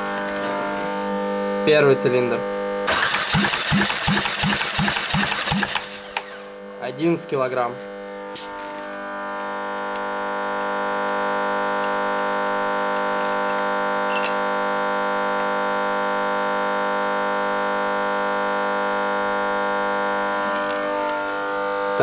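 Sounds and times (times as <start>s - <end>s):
engine cranking whine: 2.8s - 6.6s.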